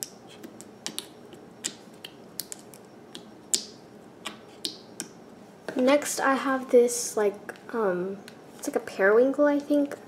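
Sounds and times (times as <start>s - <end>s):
slime clicking and popping: 0.8s - 2.8s.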